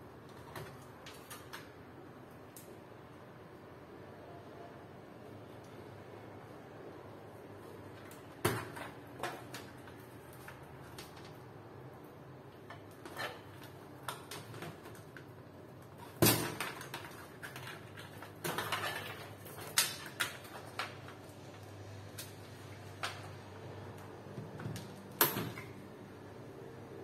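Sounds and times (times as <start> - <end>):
cables clicking against computer case: 0.2 - 2.7, 12.5 - 25.8.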